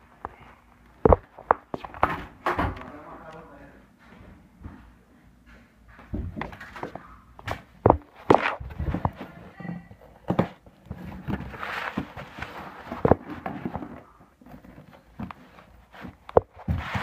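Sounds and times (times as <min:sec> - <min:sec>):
knocks and thumps: 0:06.0 - 0:12.2
rustling handling noise: 0:06.4 - 0:17.0.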